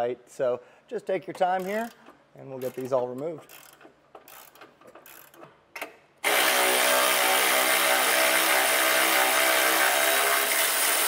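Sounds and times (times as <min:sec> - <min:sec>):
hand ratchet clicking: 0:01.4 - 0:09.1
cordless power tool whining: 0:06.2 - 0:11.0.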